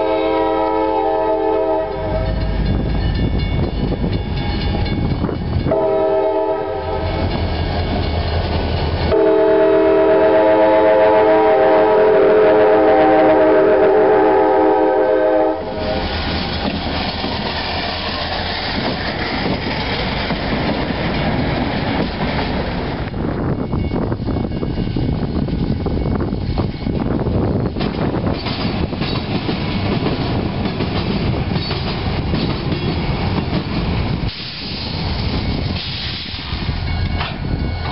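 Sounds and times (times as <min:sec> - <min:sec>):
locomotive air horn: 0:00.0 - 0:02.4, 0:05.7 - 0:07.2, 0:09.1 - 0:16.1
wheels clattering over rail joints: 0:16.0 - 0:23.0, 0:27.6 - 0:34.2.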